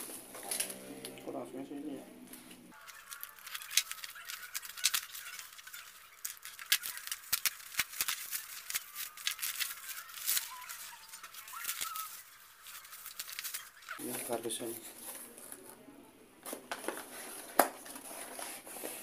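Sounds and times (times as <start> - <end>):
bubble wrap crackling: 2.4 - 15.8.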